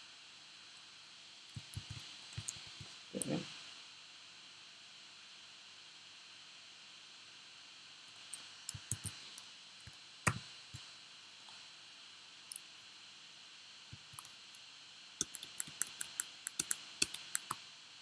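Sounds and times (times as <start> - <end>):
faint steady hiss: 0.0 - 18.0
keyboard and mouse clicks: 1.5 - 3.4, 8.1 - 9.2, 9.8 - 10.4, 14.0 - 14.3, 15.2 - 17.6.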